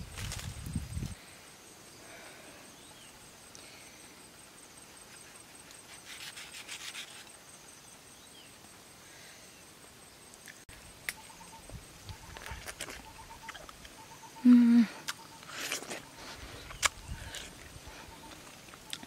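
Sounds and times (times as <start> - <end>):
faint background hiss: 0.0 - 19.0
knife scraping mango skin: 5.2 - 7.3.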